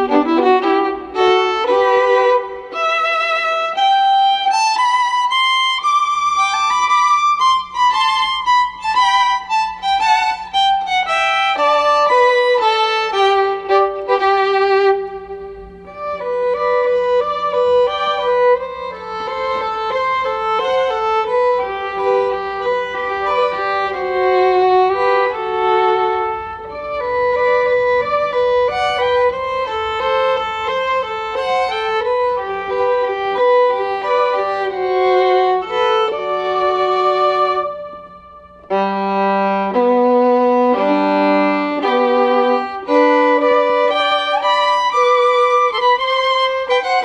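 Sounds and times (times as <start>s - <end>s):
violin melody: 0.0s - 47.0s.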